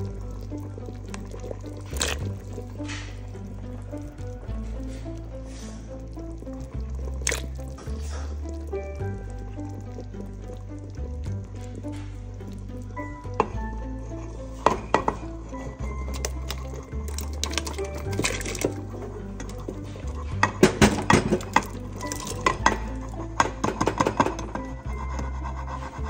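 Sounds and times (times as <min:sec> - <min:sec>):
background music with bass line: 0:00.0 - 0:26.0
dishes and utensils clattering: 0:14.5 - 0:26.0.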